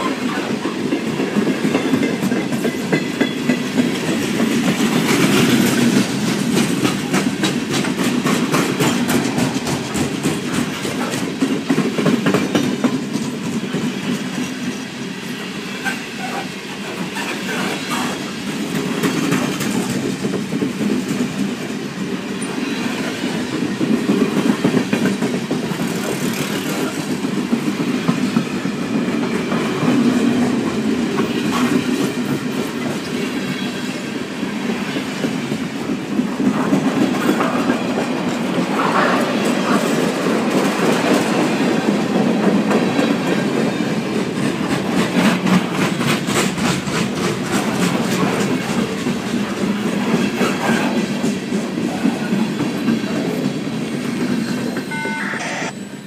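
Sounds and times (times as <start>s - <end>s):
freight train wheels clacking: 0.0s - 55.2s.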